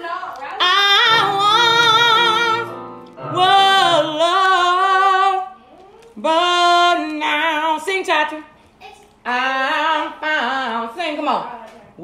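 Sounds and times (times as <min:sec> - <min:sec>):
woman singing with vibrato: 0:00.0 - 0:05.6, 0:06.2 - 0:08.5, 0:09.2 - 0:12.0.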